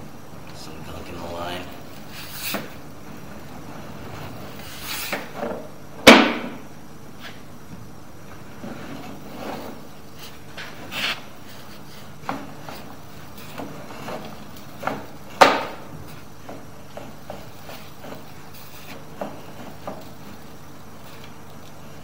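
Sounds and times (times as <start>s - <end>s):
steady hum: 0.0s - 22.0s
sharp loud knock: 6.0s - 6.6s.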